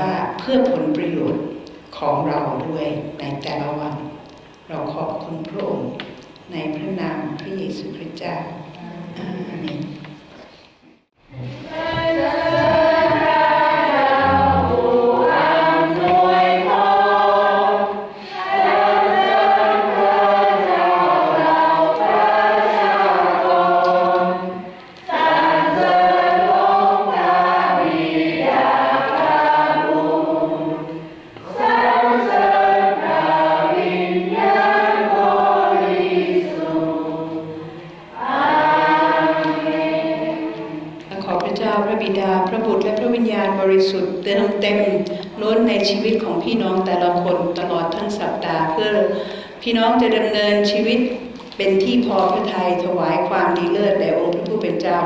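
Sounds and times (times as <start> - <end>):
congregation singing a hymn: 11.4 - 41.6.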